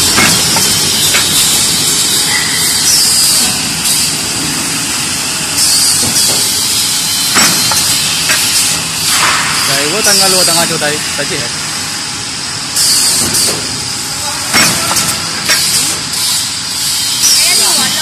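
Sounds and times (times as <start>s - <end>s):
sharp knocks from press: 0.0s - 1.6s, 5.9s - 6.6s, 7.3s - 9.4s.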